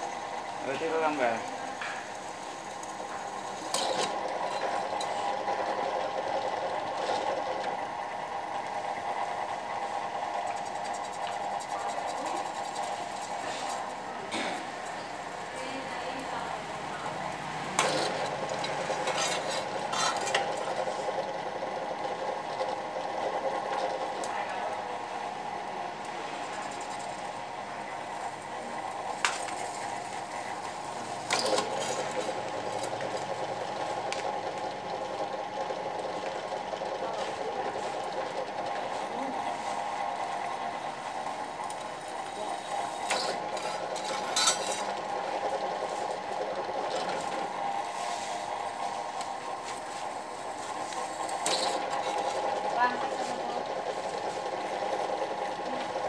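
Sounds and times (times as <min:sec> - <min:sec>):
workshop machine whirring: 0:00.0 - 0:56.0
metal tool against metal disc: 0:43.1 - 0:44.9.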